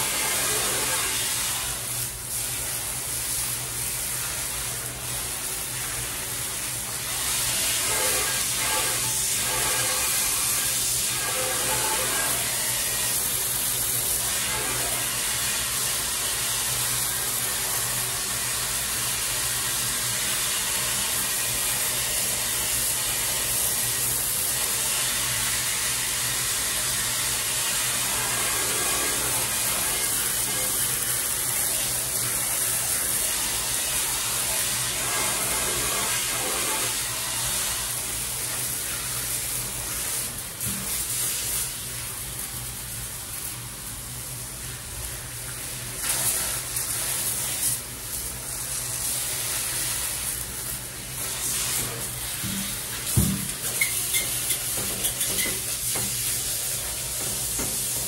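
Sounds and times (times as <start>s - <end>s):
water running in a bathtub: 0.0s - 58.0s.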